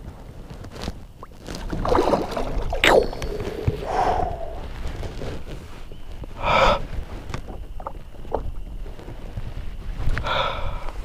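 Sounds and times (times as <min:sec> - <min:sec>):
wind rumble on microphone: 0:00.0 - 0:11.0
man breathing out heavily: 0:03.6 - 0:04.8, 0:06.4 - 0:07.0, 0:10.2 - 0:11.0.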